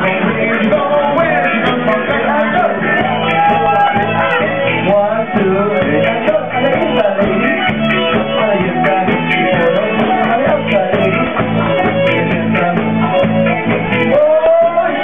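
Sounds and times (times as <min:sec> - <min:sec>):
live band playing: 0:00.0 - 0:15.0
person singing: 0:00.0 - 0:15.0.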